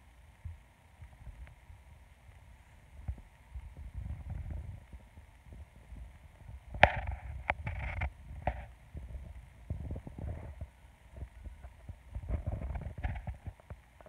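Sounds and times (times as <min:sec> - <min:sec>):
wind thumps on microphone: 0:02.9 - 0:13.8.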